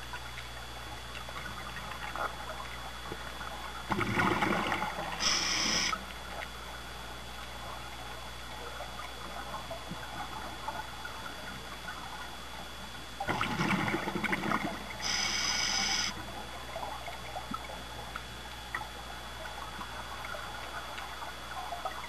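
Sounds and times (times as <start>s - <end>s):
faint underwater crackling: 0.0s - 22.0s
scuba regulator exhaust bubbles: 3.5s - 6.3s, 13.2s - 22.0s.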